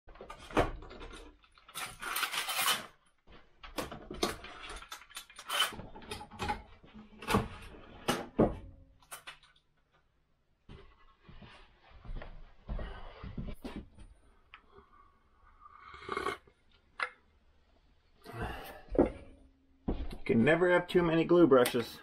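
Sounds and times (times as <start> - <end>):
knocks and clatters of clamps: 0.1 - 3.0, 3.6 - 9.6.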